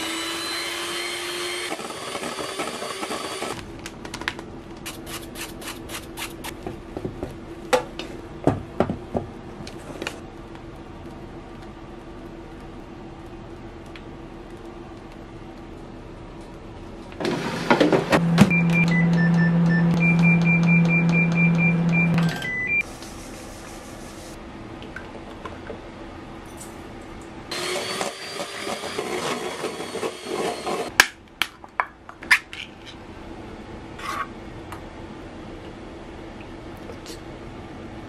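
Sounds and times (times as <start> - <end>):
microwave oven humming: 17.2 - 22.8.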